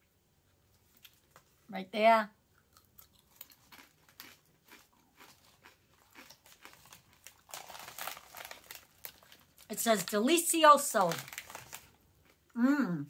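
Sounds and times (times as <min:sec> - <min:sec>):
potato chip crunching: 0:02.6 - 0:12.4
plastic bag crinkling: 0:05.3 - 0:12.0.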